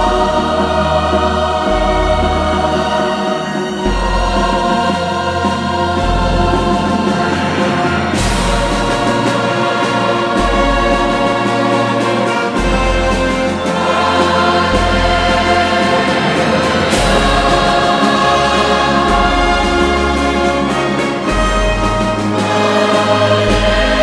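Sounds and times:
choir singing sustained chords: 0.0 - 24.0
instrumental backing: 0.0 - 24.0.

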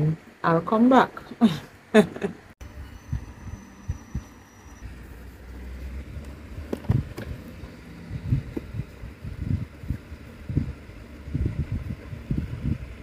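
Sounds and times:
low rumble: 2.6 - 13.0.

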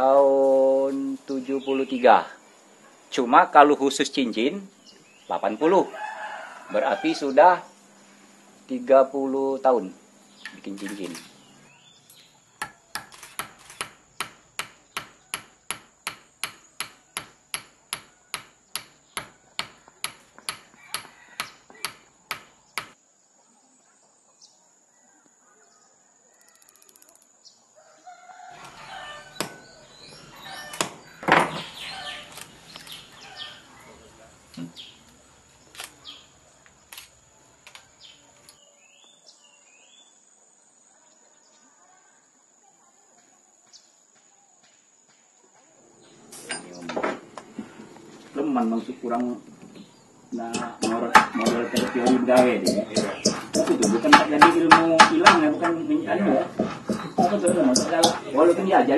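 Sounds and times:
rooster crowing: 5.7 - 7.7, 20.6 - 22.0, 27.8 - 31.0, 50.6 - 54.2
bench work sounds: 12.6 - 23.0, 50.4 - 58.8.

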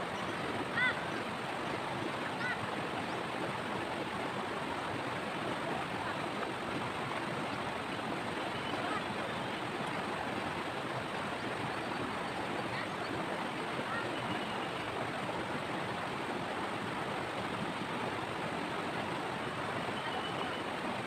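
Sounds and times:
river water rushing over rocks: 0.0 - 21.0.

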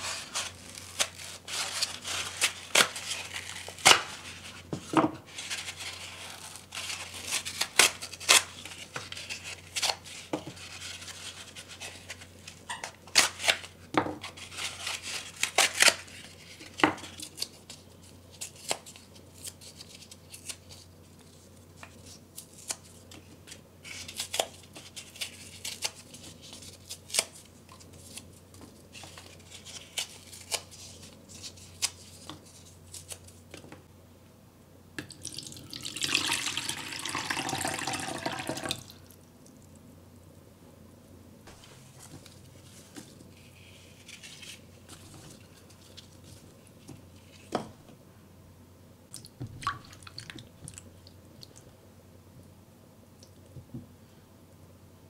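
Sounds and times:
egg cartons being torn: 0.0 - 4.4, 5.4 - 10.1
water pouring into bowl: 35.1 - 38.9.

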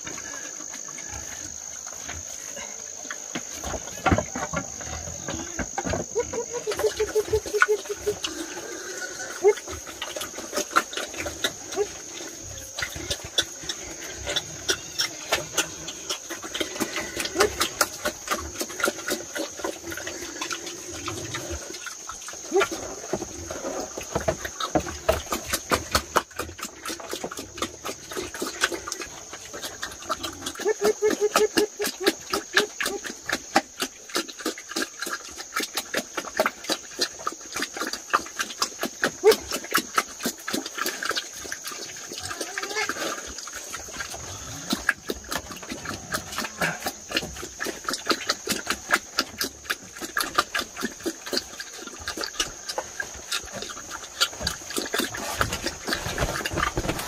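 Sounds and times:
wild boars grunting: 0.0 - 57.0
sharp chewing clicks and smacks: 31.3 - 42.0, 43.3 - 56.0.

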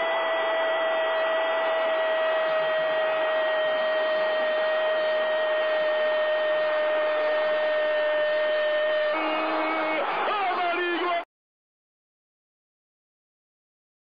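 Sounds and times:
long held tone: 0.0 - 10.2
stadium crowd roaring: 0.0 - 11.3.

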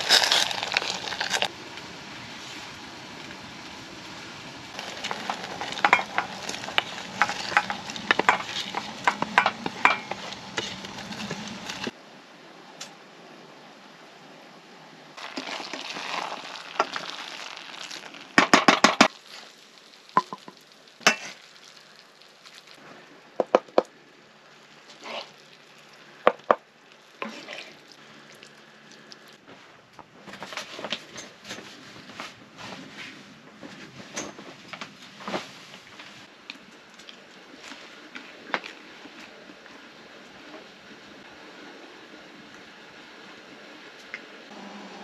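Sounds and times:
spatula scraping a pan: 4.8 - 11.9, 27.2 - 27.8
meat sizzling in a frying pan: 15.2 - 22.8.

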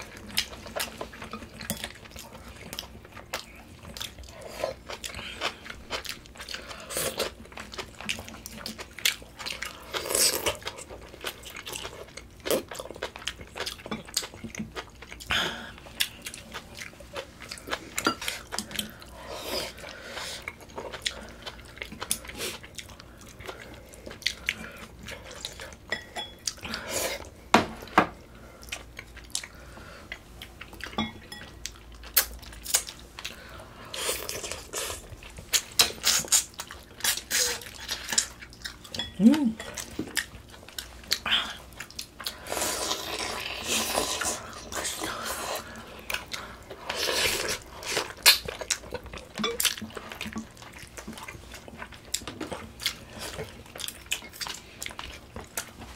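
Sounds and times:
chewing and biting: 39.7 - 55.9.

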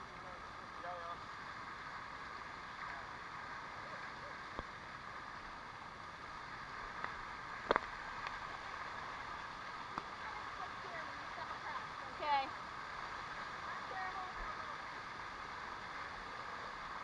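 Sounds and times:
water rushing over rock: 0.0 - 17.0.

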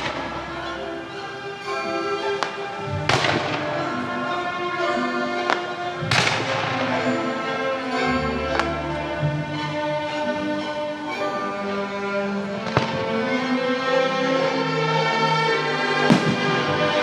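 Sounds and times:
background music with held notes: 0.0 - 17.0
firework bangs with crackle: 2.2 - 3.9, 12.6 - 13.3, 16.0 - 17.0
sharp firework cracks: 2.2 - 4.0, 12.7 - 13.2, 16.0 - 17.0.

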